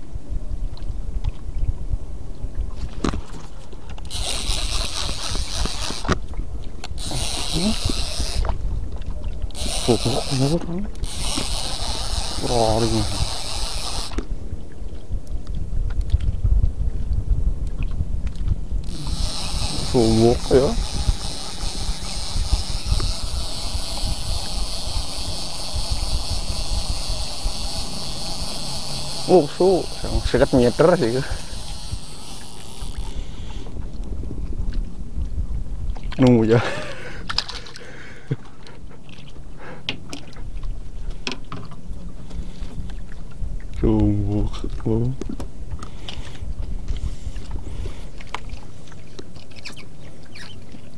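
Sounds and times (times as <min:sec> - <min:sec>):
wind buffeting microphone: 0:00.0 - 0:37.6, 0:40.3 - 0:48.8
gear clicking and knocking: 0:04.1 - 0:06.2, 0:09.5 - 0:14.2, 0:18.8 - 0:33.6
small engine humming: 0:04.1 - 0:06.2, 0:06.9 - 0:08.6, 0:09.5 - 0:14.2, 0:18.8 - 0:33.8.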